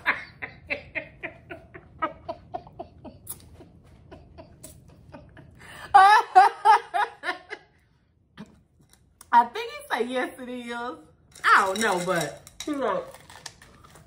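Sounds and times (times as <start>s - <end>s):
woman laughing: 0.0s - 7.8s.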